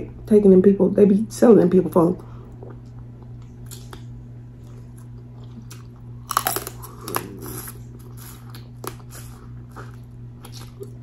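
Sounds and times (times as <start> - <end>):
person chewing with wet clicks: 2.5 - 11.0.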